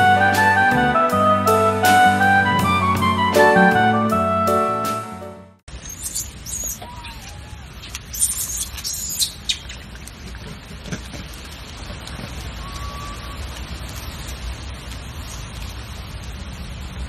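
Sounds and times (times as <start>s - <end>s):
birds chirping: 5.8s - 9.9s
faint squeaks and clicks: 5.8s - 14.1s.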